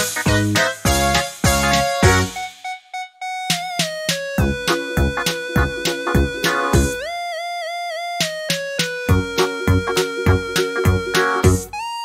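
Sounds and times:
steady beat: 0:00.0 - 0:07.0, 0:08.2 - 0:11.7
held melody note: 0:02.3 - 0:08.0, 0:09.1 - 0:11.9.

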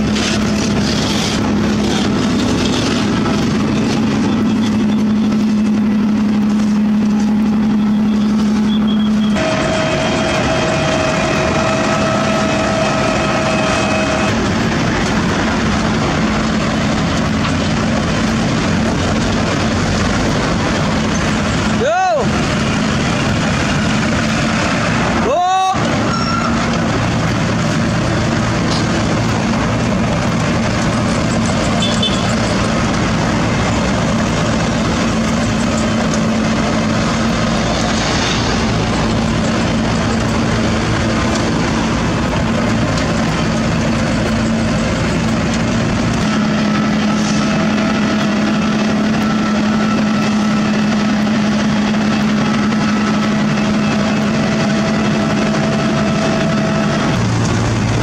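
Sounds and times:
diesel engine under load: 0:00.0 - 0:58.0
drum grinding asphalt: 0:00.0 - 0:58.0.

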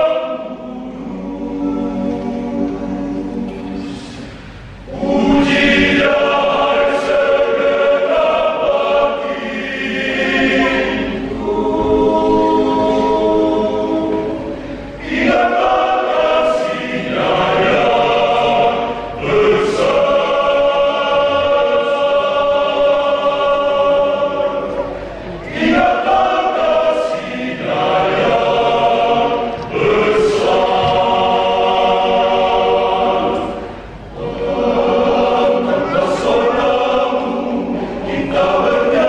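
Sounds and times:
men's choir singing a cappella: 0:00.0 - 0:39.0.

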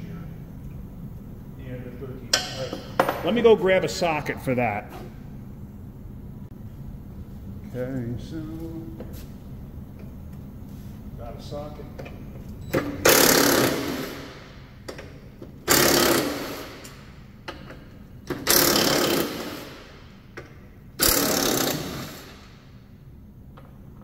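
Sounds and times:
impact wrench hammering bolts: 0:12.8 - 0:22.4.

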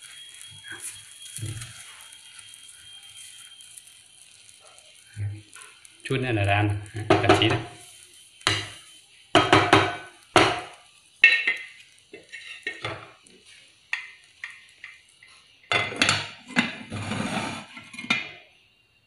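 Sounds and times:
wooden spatula knocking on metal pot: 0:09.4 - 0:11.6
metal lid clattering onto pot: 0:15.7 - 0:16.8.

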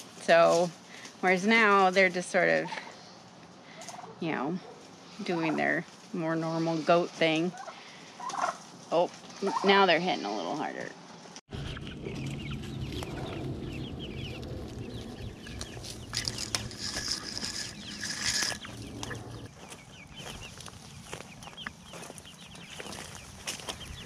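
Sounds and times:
chicks chirping and clucking: 0:11.5 - 0:24.0.

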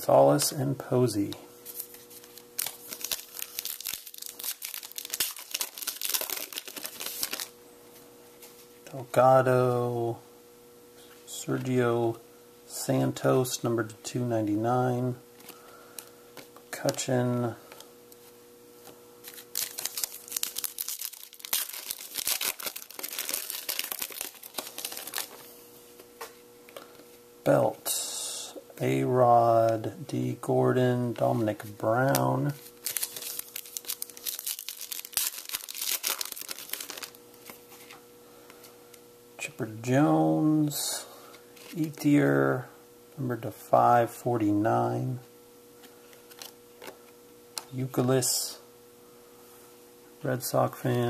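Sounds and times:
foil wrapper crinkling and tearing: 0:02.2 - 0:07.5, 0:19.2 - 0:25.5, 0:32.1 - 0:37.6.

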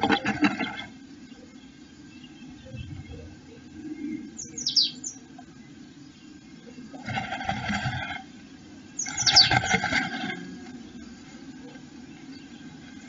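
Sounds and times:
rustling and wing-fluttering: 0:00.0 - 0:01.0, 0:06.8 - 0:13.0
bird chirping: 0:00.0 - 0:07.0, 0:08.3 - 0:12.9.

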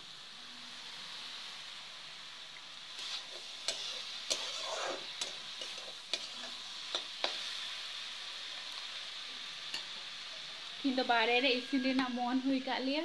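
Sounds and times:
vegetables sizzling in a pan: 0:00.0 - 0:13.0
spatula scraping pan: 0:03.0 - 0:07.4.

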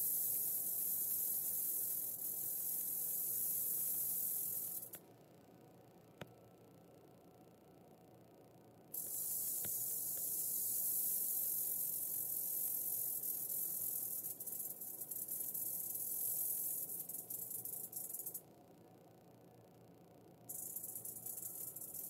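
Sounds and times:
rattlesnake rattling its tail: 0:00.0 - 0:05.0, 0:09.0 - 0:18.4, 0:20.5 - 0:22.0.

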